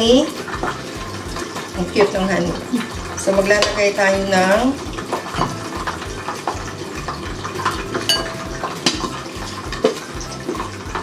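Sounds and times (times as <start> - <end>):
metal spoon clinking on glass: 8.1 - 8.5.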